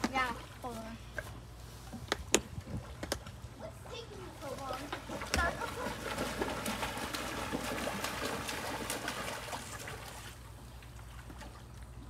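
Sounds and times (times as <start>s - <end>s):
pool water splashing: 0.0s - 12.0s
water lapping: 2.6s - 12.0s.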